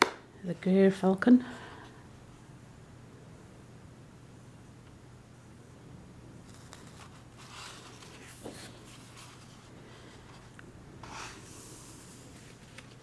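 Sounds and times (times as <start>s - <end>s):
paper page turning: 6.4s - 9.7s, 10.3s - 13.0s
hand sliding over paper: 6.5s - 13.0s.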